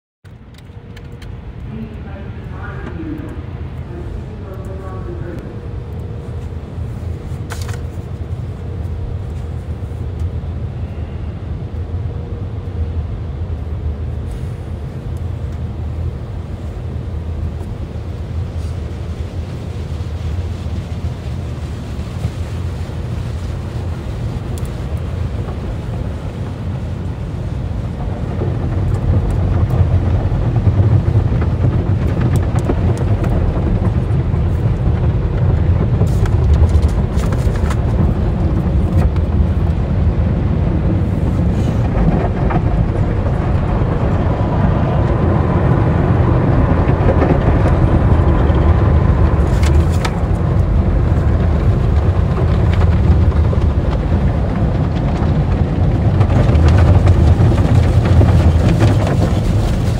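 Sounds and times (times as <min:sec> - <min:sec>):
car wash water spray: 0:13.3 - 0:42.0.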